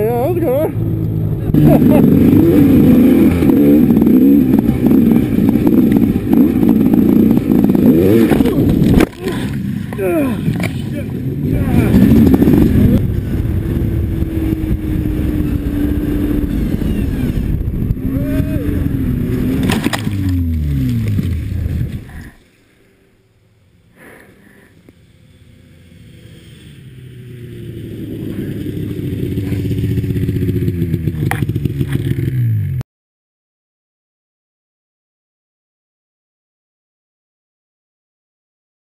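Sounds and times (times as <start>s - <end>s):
snowmobile approaching: 0.0s - 32.8s
snowmobile engine revving: 0.0s - 32.8s.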